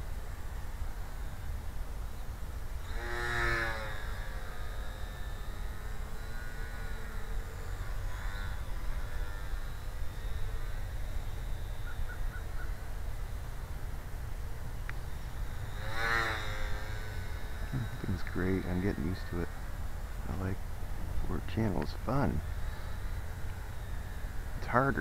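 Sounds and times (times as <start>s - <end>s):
model plane motor whine: 0.0s - 25.0s.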